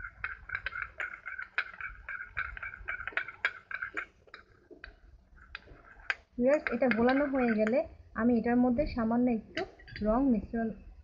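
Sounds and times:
metal spoon scraping plastic bowl: 0.0 - 7.8.

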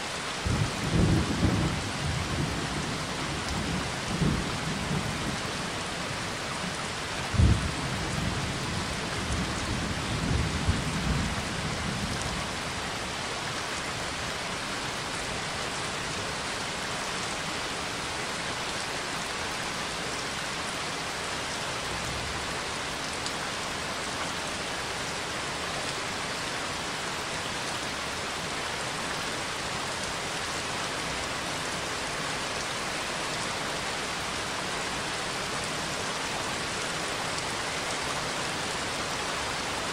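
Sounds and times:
steady rainfall: 0.0 - 39.9
low thunder rumbling: 7.3 - 8.5.

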